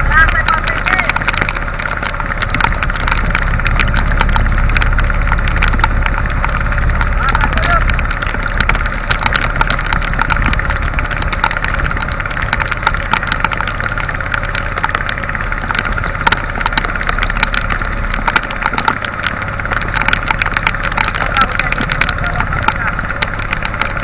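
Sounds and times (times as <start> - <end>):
boat engine running: 0.0 - 24.0
heavy rain: 0.0 - 24.0
raindrops ticking on microphone: 0.0 - 24.0.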